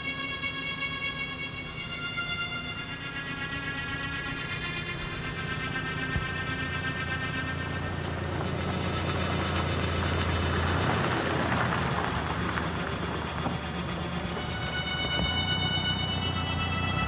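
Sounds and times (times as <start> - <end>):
car driving past on dirt: 3.4 - 17.0.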